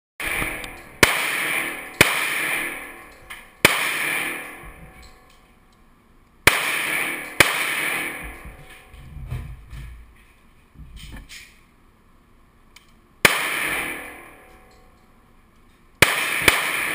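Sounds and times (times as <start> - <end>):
echoing gunshots: 0.2 - 5.1, 6.4 - 9.0, 13.2 - 14.6, 16.0 - 16.9.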